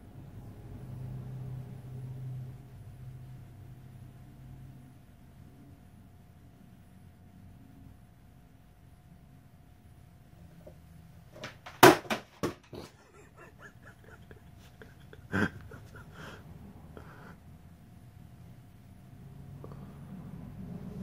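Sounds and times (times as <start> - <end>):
cat knocking on wooden shelf: 11.4 - 12.8.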